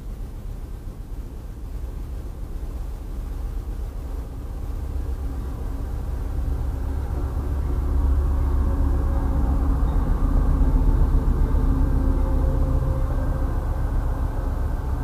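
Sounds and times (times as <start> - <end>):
diesel locomotive engine rumble: 0.0 - 15.0.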